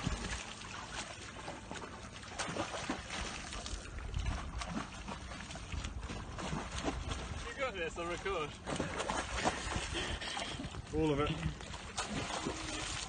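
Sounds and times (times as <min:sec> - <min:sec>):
splashy crackles: 0:00.0 - 0:10.6, 0:11.5 - 0:13.0
water rushing: 0:00.0 - 0:13.0
wind: 0:00.0 - 0:13.0.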